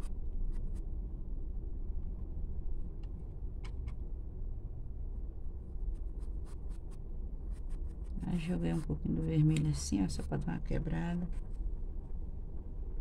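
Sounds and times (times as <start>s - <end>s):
steady low hum: 0.0s - 13.0s
paintbrush scratching canvas: 5.9s - 9.2s.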